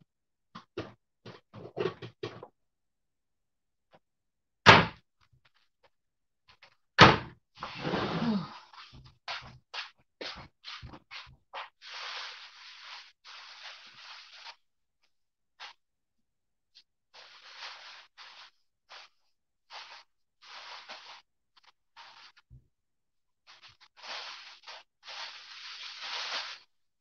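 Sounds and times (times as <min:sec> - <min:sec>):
loud kitchen thunks: 0:04.7 - 0:05.0, 0:07.0 - 0:07.4
rustling: 0:17.2 - 0:22.4, 0:23.5 - 0:26.7.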